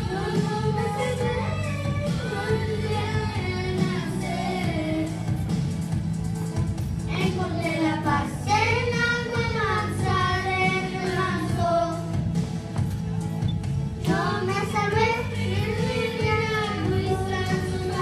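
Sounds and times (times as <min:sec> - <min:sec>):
girl singing into a microphone: 0:00.0 - 0:05.4, 0:07.1 - 0:12.3, 0:14.1 - 0:18.0
musical accompaniment: 0:00.0 - 0:18.0.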